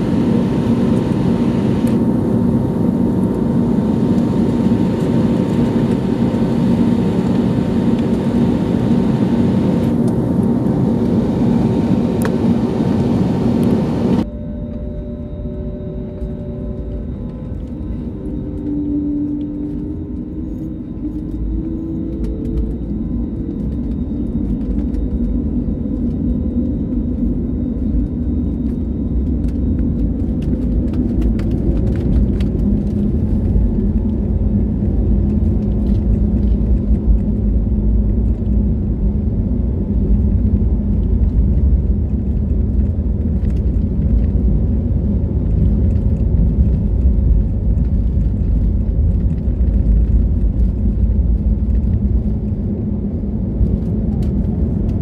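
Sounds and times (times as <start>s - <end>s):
jet engines at takeoff thrust: 0.0s - 55.0s
wheels rumbling on runway: 0.0s - 55.0s.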